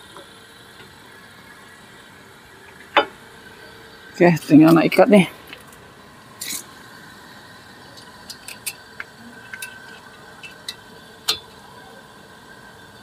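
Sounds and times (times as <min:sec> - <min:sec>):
metal scrape: 0:06.4 - 0:06.8.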